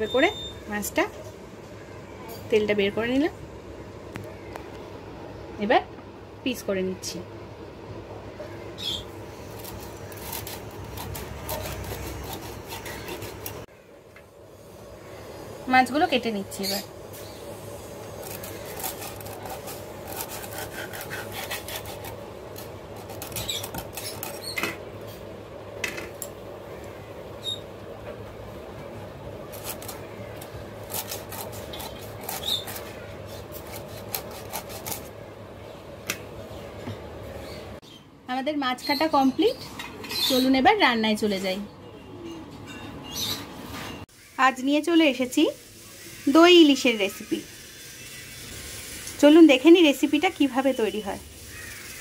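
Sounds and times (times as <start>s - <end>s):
fish scraped against a blade: 18.2s - 22.2s, 30.8s - 35.1s.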